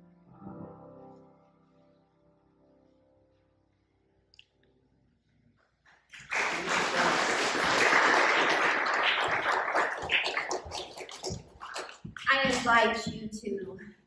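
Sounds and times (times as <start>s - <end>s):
person speaking: 10.6s - 14.0s.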